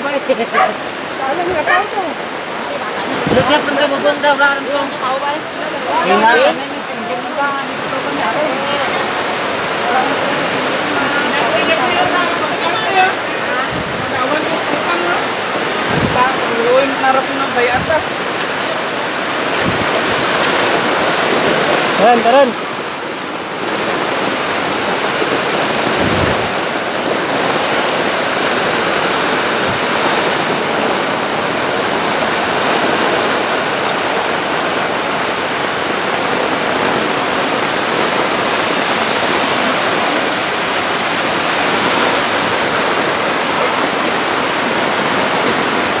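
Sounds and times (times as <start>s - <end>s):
floodwater rushing: 0.0s - 46.0s
people wading through water: 0.0s - 46.0s.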